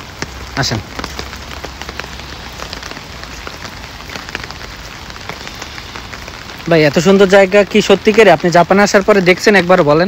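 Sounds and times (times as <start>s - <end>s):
hiss of falling rain: 0.0s - 10.0s
raindrop hits: 0.0s - 10.0s.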